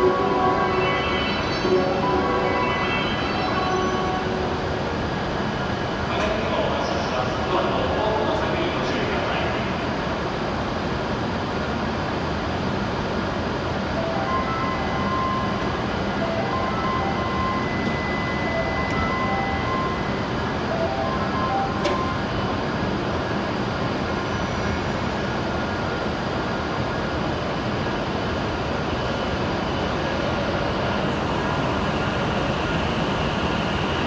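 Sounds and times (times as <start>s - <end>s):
electronic chime notes: 0.0s - 4.6s, 14.0s - 22.3s
steady high tone: 0.0s - 5.6s, 13.7s - 23.5s
train hum: 0.0s - 34.0s.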